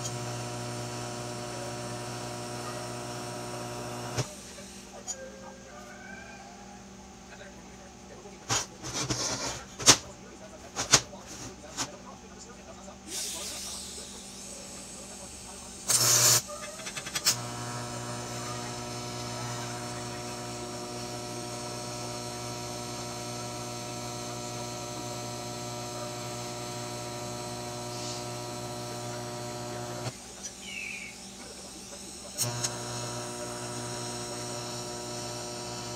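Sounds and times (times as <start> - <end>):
arc welding buzzing hum: 0.0 - 5.0, 13.9 - 35.9.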